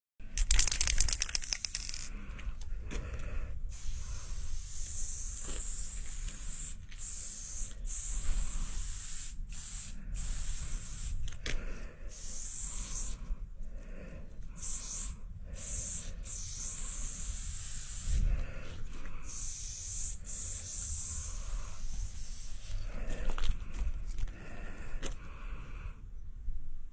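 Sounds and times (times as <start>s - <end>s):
spray paint can hissing: 0.4s - 2.1s, 3.7s - 11.3s, 12.1s - 13.2s, 14.6s - 18.3s, 19.2s - 22.8s.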